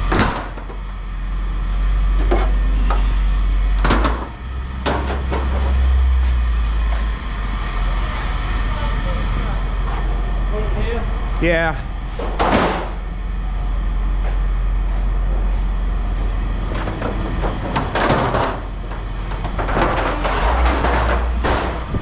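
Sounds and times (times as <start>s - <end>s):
vehicle engine humming: 0.0s - 22.0s
clattering bursts: 16.6s - 22.0s.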